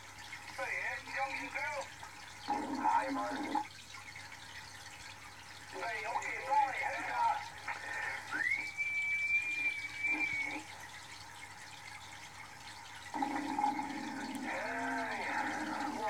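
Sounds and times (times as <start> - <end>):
radio hiss: 5.8 - 8.6
garbled radio signal: 5.8 - 10.7, 13.2 - 16.0
radio whistling tone: 8.1 - 10.7.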